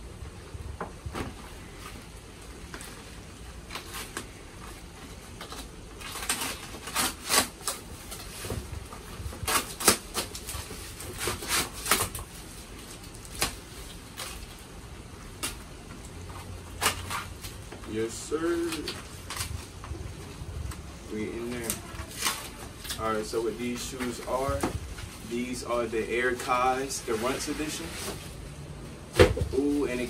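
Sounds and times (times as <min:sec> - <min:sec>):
cardboard packaging rustling: 0:00.3 - 0:30.0.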